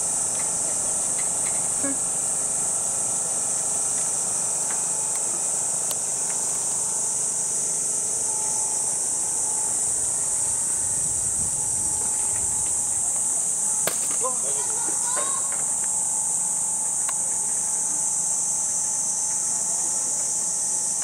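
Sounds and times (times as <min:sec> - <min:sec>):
cicada chorus droning: 0:00.0 - 0:21.0.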